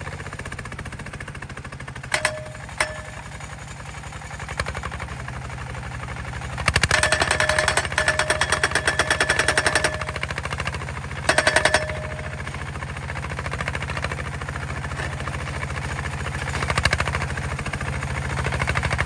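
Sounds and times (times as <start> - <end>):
diesel engine chugging: 0.0 - 19.0
hammer pounding steel post: 2.1 - 3.6, 6.9 - 10.6, 11.3 - 12.7.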